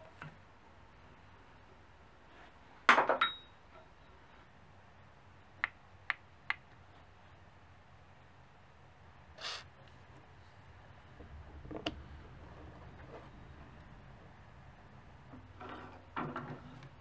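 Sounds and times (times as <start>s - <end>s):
metal scrape: 11.3s - 16.8s.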